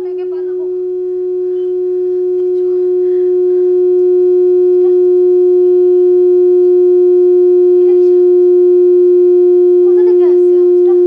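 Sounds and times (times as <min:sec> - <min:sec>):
steady electronic tone: 0:00.0 - 0:11.0.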